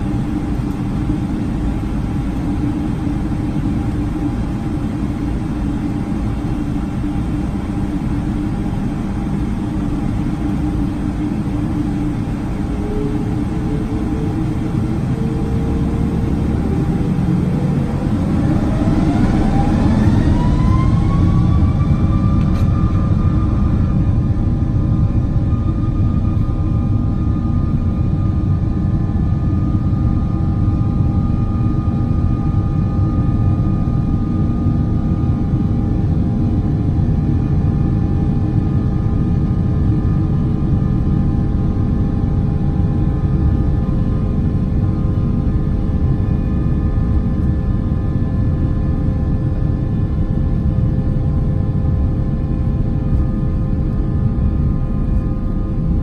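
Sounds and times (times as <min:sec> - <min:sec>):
jet engine whine: 0:00.0 - 0:56.0
loud steady rumble: 0:00.0 - 0:56.0.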